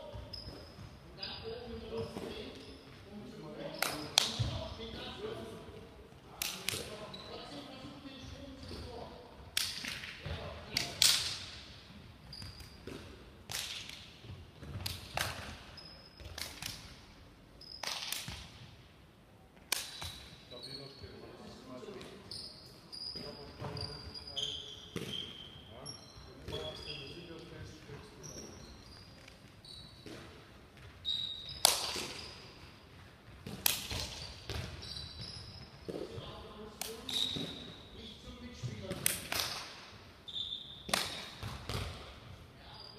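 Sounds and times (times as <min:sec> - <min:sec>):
shoe squeaks: 0:00.0 - 0:05.4, 0:06.8 - 0:09.0, 0:12.2 - 0:13.0, 0:15.5 - 0:16.4, 0:17.6 - 0:17.9, 0:19.9 - 0:21.5, 0:22.1 - 0:32.8, 0:33.8 - 0:38.6, 0:40.2 - 0:41.5, 0:42.6 - 0:42.9.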